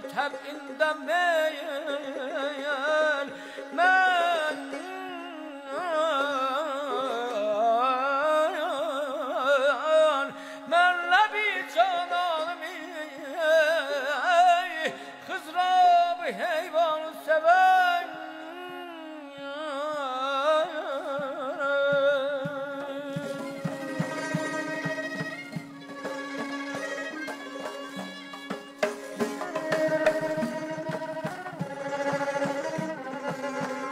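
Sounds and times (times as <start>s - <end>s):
person singing melismatic runs: 19.6s - 33.9s.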